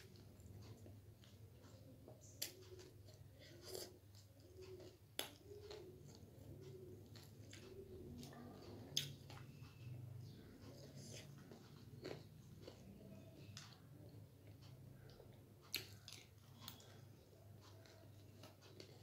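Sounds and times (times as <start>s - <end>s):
person chewing crunchy snack: 11.0s - 12.9s.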